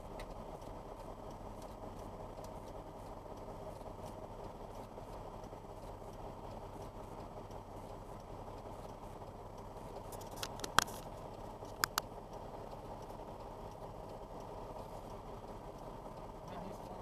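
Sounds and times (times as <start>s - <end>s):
diesel truck engine idling: 0.0s - 17.0s
sharp clicks: 9.6s - 16.3s.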